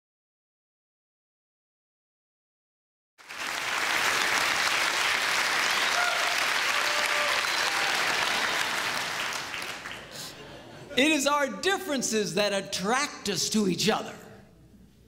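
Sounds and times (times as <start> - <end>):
audience applauding: 3.2 - 10.4.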